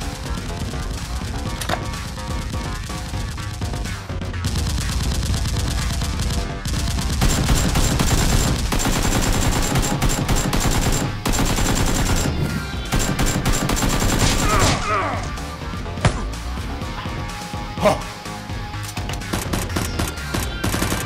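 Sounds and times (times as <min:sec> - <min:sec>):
rapid automatic gunfire: 0:00.0 - 0:14.7, 0:19.3 - 0:21.0
background music: 0:00.0 - 0:21.0.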